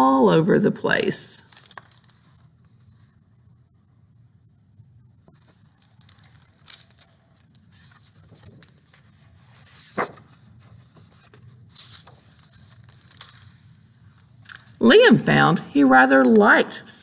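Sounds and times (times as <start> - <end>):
book pages rustling: 1.5 - 3.2, 5.2 - 14.6
paper swishes: 7.7 - 13.5.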